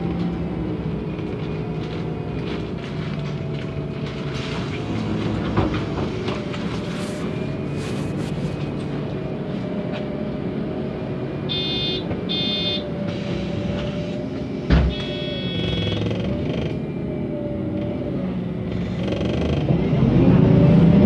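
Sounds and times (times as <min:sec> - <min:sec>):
bus engine drone: 0:00.0 - 0:21.0
short electronic beeps: 0:11.5 - 0:12.8, 0:14.9 - 0:16.1
long beeping tone: 0:11.5 - 0:12.9, 0:14.9 - 0:16.1.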